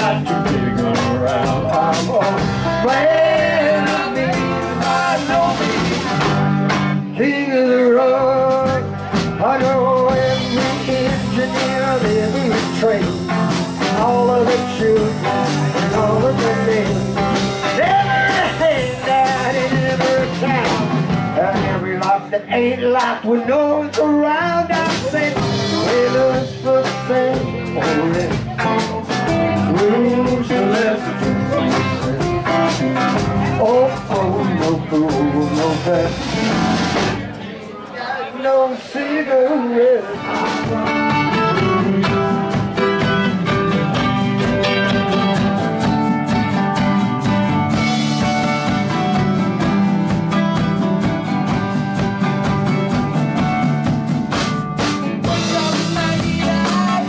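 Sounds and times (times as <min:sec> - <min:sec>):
drum strikes: 0:00.0 - 0:07.1, 0:24.8 - 0:37.4, 0:40.2 - 0:57.0
electric guitar melody bending: 0:00.0 - 0:37.4, 0:40.1 - 0:57.0
live blues-rock band playing: 0:00.0 - 0:37.7, 0:38.5 - 0:57.0.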